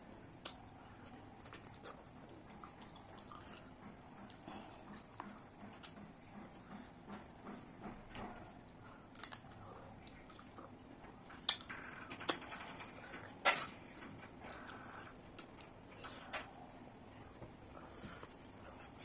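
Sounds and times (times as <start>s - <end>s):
lip smacks: 0.4s - 6.0s, 9.1s - 10.7s, 11.3s - 11.7s
wet chewing: 0.4s - 12.4s.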